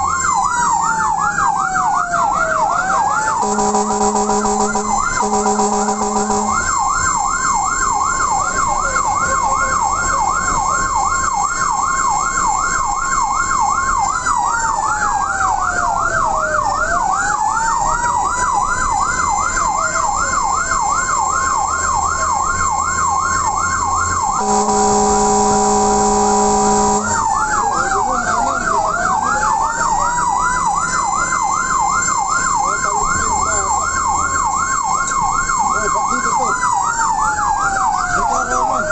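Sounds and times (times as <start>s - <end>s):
electronic siren sweeping: 2.7s - 8.4s, 22.8s - 29.4s
blaring horn: 3.4s - 7.2s, 24.4s - 27.6s
vehicle engine rumbling: 3.4s - 7.3s, 24.2s - 28.3s.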